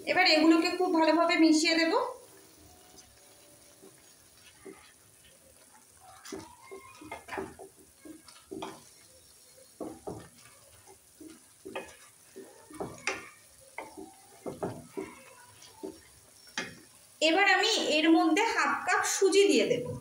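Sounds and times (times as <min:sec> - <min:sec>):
boiling mixture bubbling: 0:00.0 - 0:20.0
wooden spatula scraping metal pot: 0:02.9 - 0:16.9.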